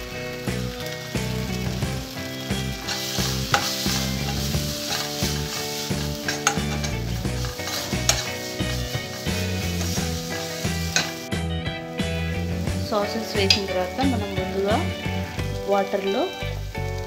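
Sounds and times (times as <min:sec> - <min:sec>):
background music: 0:00.0 - 0:17.0
oil sizzling: 0:00.0 - 0:17.0
spoon scraping a wok: 0:02.8 - 0:11.3.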